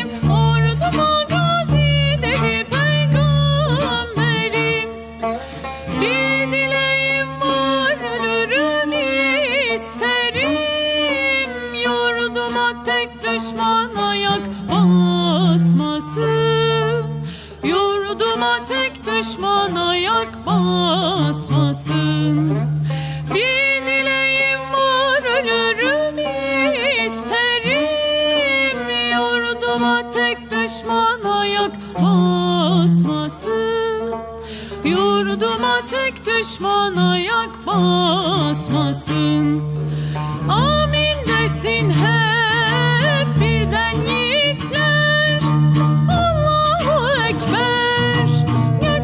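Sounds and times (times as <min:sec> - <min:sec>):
woman singing: 0:00.0 - 0:05.2, 0:05.8 - 0:49.0
bowed cello: 0:00.0 - 0:49.0
plucked lute: 0:00.0 - 0:49.0.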